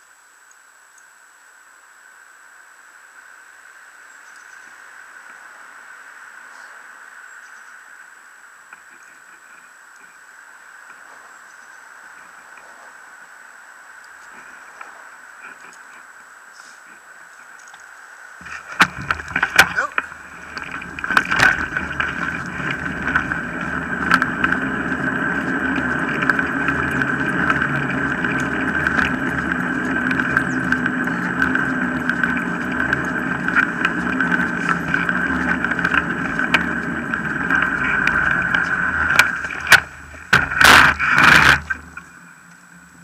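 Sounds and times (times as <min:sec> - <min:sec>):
wheels rolling over tarmac: 0:03.0 - 0:43.0
rig clattering scrapes: 0:18.4 - 0:42.2.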